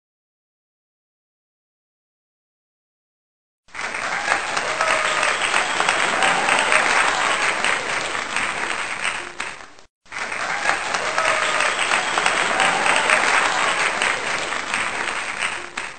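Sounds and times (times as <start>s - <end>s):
crowd applauding: 3.7s - 15.9s.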